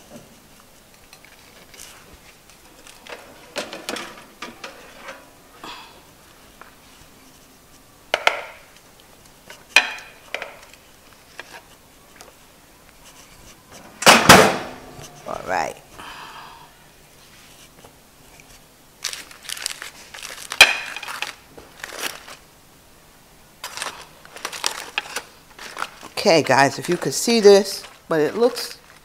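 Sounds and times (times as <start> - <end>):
metal pan and rack clattering: 3.1 - 5.3.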